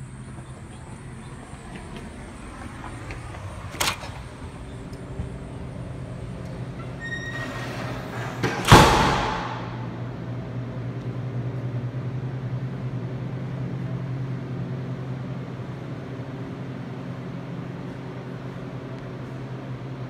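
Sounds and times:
steady low hum: 0.0 - 20.0
door banging shut: 6.8 - 10.0.

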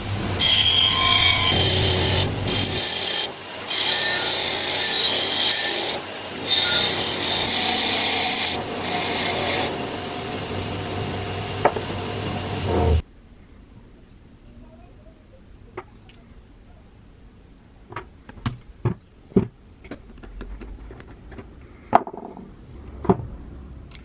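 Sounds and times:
wire wheel scratching metal: 0.4 - 9.8.

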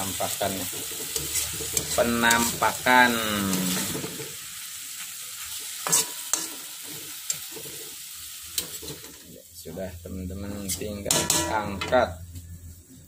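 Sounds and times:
hot oil sizzling: 0.0 - 13.0
metal spatula scraping a wok: 0.5 - 4.4, 5.4 - 9.4, 10.5 - 12.2.

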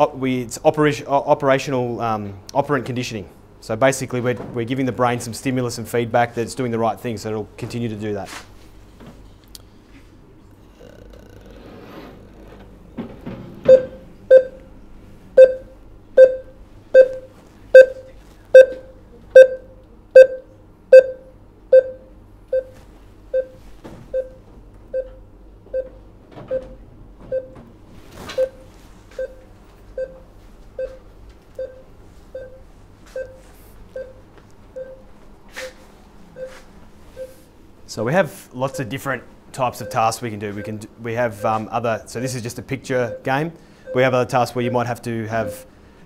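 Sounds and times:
short mid-pitched beeps: 15.4 - 18.0, 19.4 - 22.7.

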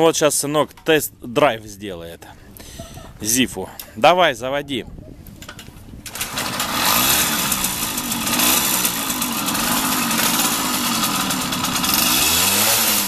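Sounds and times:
two-stroke moped engine revving: 6.1 - 13.0.

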